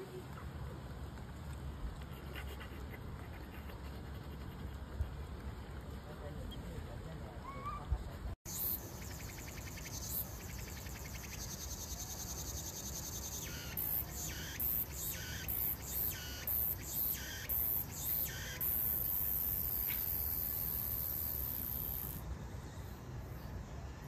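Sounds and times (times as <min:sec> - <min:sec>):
faint high insect trill: 0:08.5 - 0:24.0.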